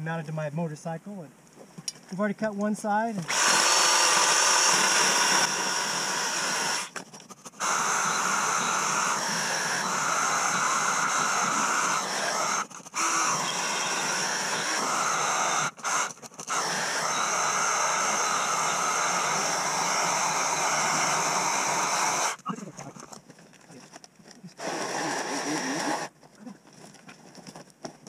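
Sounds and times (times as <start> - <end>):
chainsaw cutting log: 3.2 - 22.4, 24.6 - 26.1.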